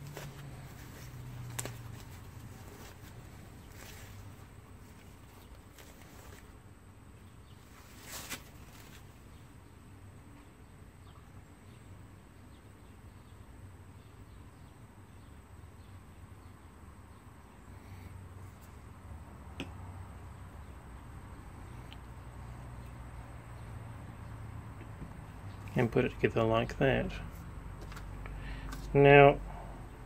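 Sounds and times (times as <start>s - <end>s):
brief rustle: 7.8s - 9.1s.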